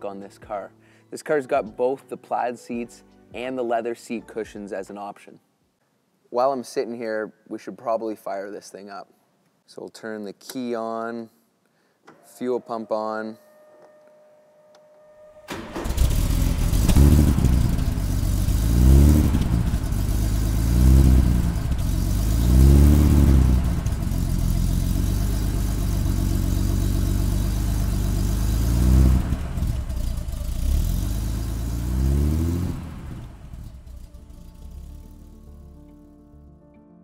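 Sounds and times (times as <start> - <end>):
car engine revving: 15.5 - 35.4.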